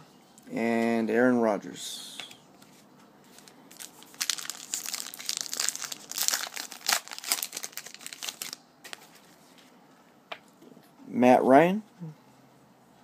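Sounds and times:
card pack wrapper crinkling: 3.3 - 9.2.

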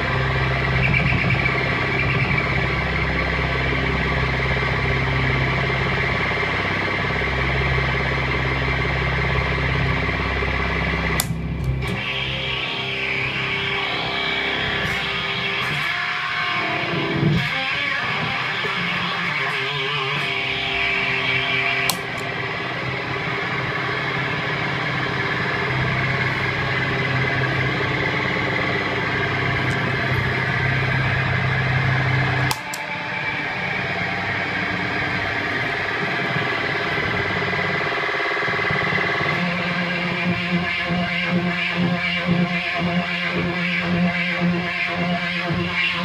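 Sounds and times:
fuzz electric guitar drone: 0.0 - 46.0
footswitch click: 11.2 - 12.0, 21.8 - 22.3, 32.4 - 32.9.

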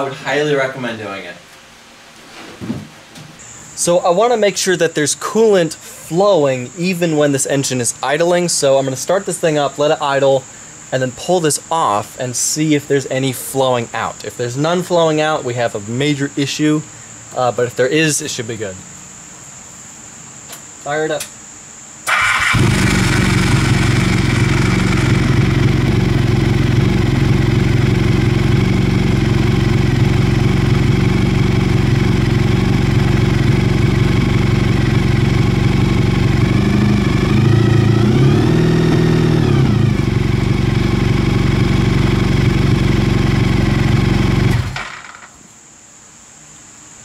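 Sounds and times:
motorcycle engine idling: 22.1 - 45.0.

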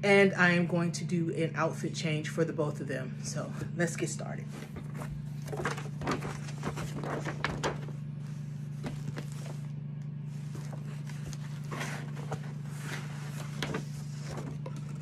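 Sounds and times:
steady low hum: 0.0 - 15.0
tissue paper rustling: 4.5 - 15.0.

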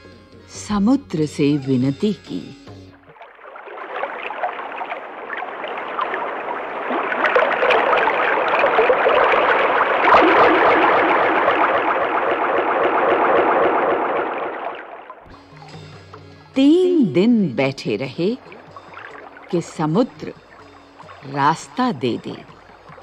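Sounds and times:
sea waves rushing: 3.1 - 16.5, 18.1 - 23.0.

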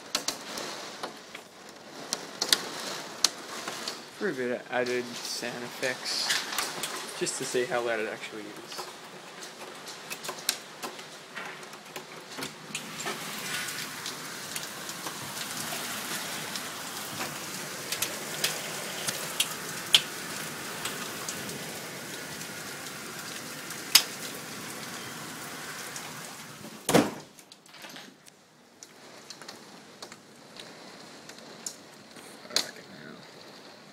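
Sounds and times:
heavy rain pouring: 0.0 - 26.9, 28.4 - 33.9
loud short thump: 26.9 - 27.3.

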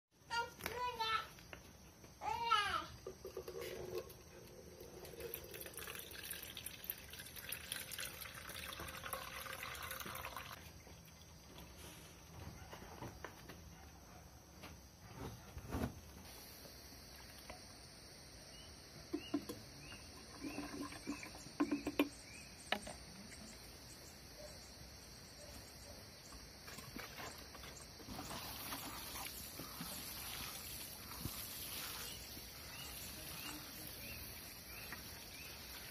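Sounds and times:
liquid trickling into glass jar: 3.0 - 11.7, 19.2 - 22.3
watering can sprinkling on soil: 3.0 - 12.4, 19.1 - 23.1, 26.5 - 35.9.

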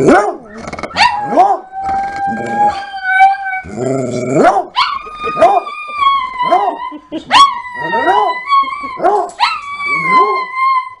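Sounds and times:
dogs howling: 0.0 - 11.0.

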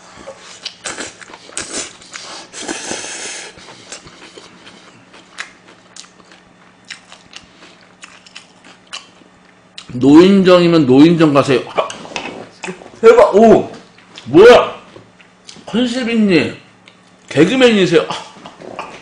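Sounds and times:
wet chewing of noodles: 0.2 - 9.9.

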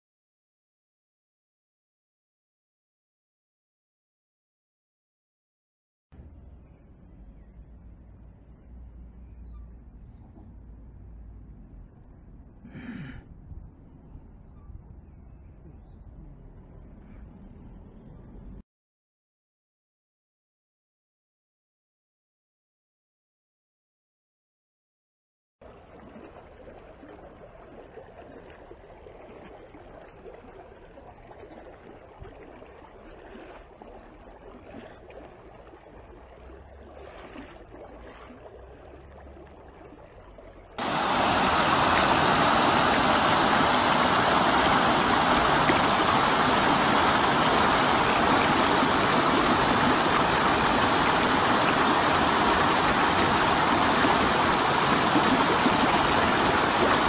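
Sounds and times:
faint hum: 6.2 - 18.6
rushing river water: 25.6 - 57.0.

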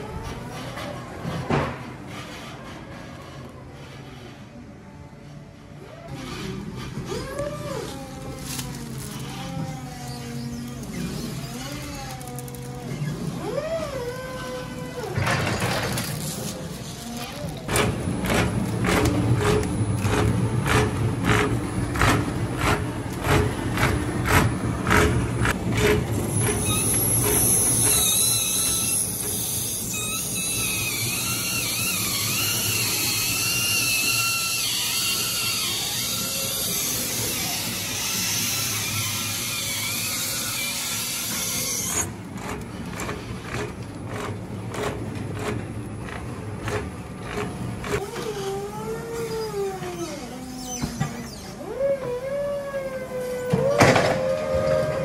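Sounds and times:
high wavering squeal: 26.3 - 42.1.

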